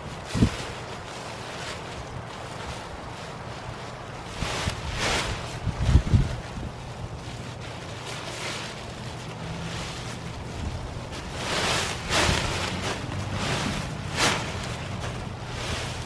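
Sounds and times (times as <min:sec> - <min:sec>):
tent fabric rustling and crinkling: 0:00.0 - 0:16.0
wind buffeting microphone: 0:04.2 - 0:07.4, 0:09.3 - 0:16.0.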